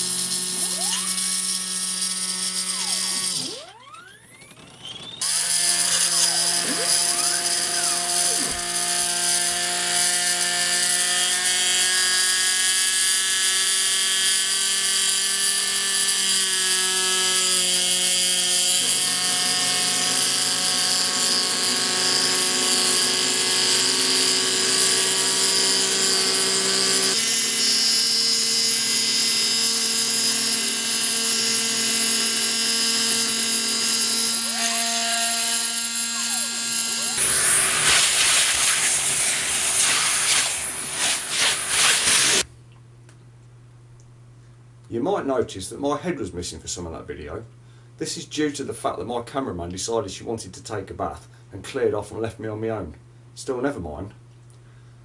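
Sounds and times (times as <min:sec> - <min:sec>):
stepper motors whining: 0:00.0 - 0:42.4
router spindle whine: 0:00.0 - 0:42.5.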